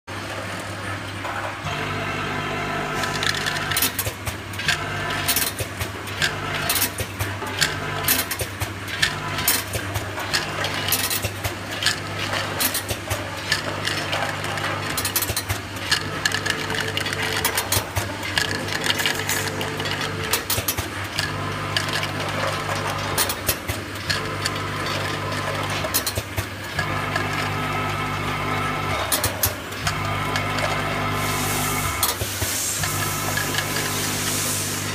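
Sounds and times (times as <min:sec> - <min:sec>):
capsules clicking and rattling: 0:03.2 - 0:26.9
machine steady low hum: 0:32.7 - 0:34.9.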